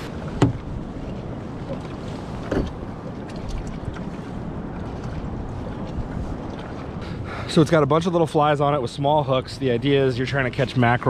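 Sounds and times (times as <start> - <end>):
wind noise on microphone: 0.0 - 7.5.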